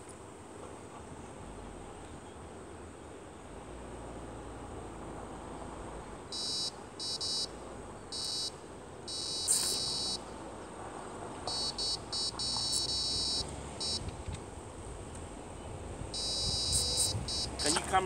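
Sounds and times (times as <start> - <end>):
electronic bite alarm beeping: 6.3 - 7.5, 8.1 - 10.2, 11.5 - 14.1, 16.1 - 18.0.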